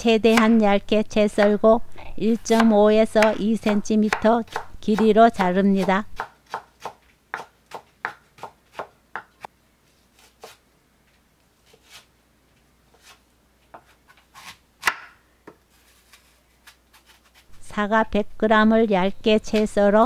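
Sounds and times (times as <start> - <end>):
knife chopping on wooden board: 2.5 - 9.4, 13.8 - 15.2.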